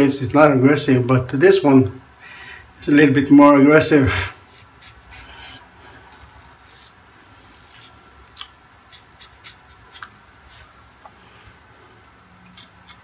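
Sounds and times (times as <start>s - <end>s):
razor scraping whiskers: 4.2s - 8.0s, 8.9s - 10.2s, 12.5s - 13.0s.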